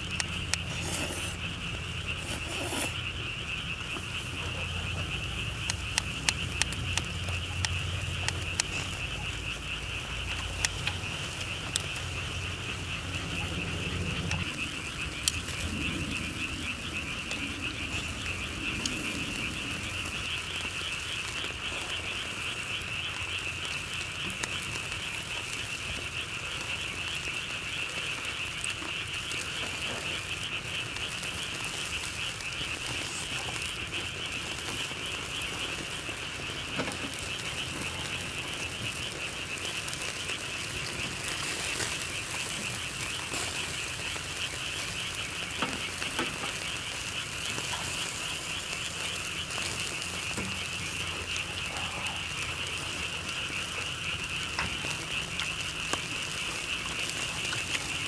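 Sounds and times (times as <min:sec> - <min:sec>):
chorus of calling animals: 0:00.0 - 0:58.0
faint clicks: 0:03.9 - 0:09.5, 0:10.1 - 0:12.0.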